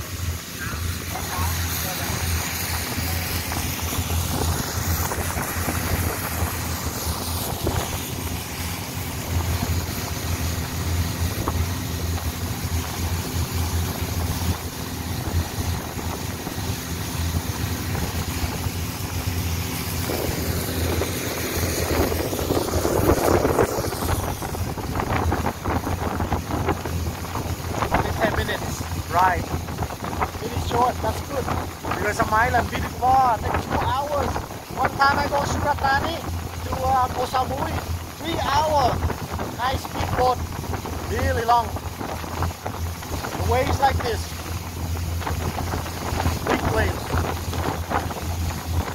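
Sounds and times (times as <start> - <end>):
boat engine droning: 0.0 - 48.9
water rushing along hull: 0.0 - 48.9
wind on microphone: 0.0 - 48.9.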